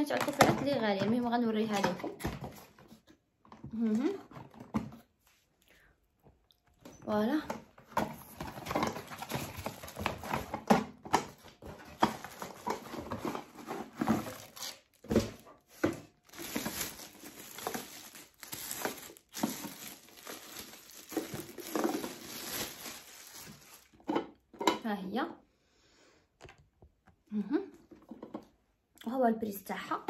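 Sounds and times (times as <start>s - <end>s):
plastic bag crinkling: 8.2s - 24.2s.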